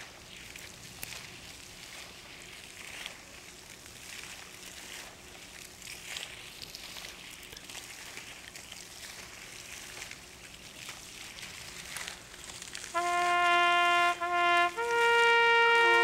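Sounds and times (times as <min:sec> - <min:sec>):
faint ticks and rustles: 0:00.0 - 0:15.1
steady airy hiss: 0:11.2 - 0:16.0.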